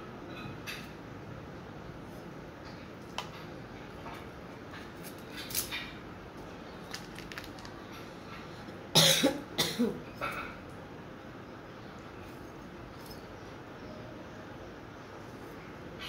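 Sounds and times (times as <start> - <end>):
person coughing: 9.0 - 10.5.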